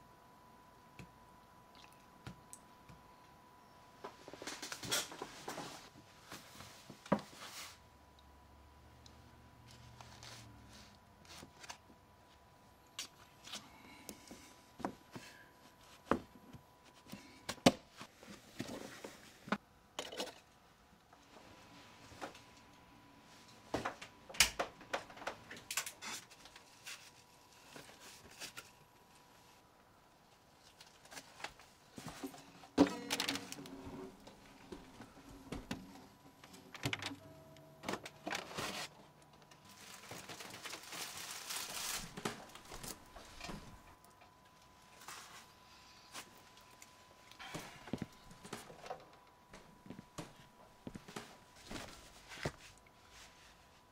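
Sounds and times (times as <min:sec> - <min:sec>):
rustling: 0:39.6 - 0:43.9.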